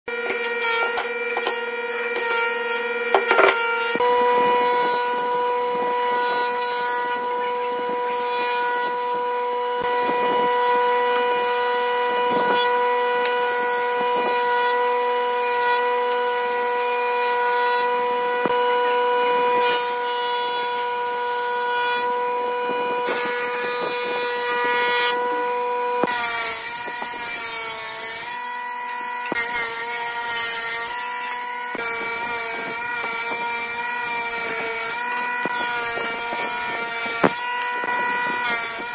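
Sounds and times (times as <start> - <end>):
blades cutting wood: 0.1 - 38.9
woodworking machines whining: 0.1 - 38.9.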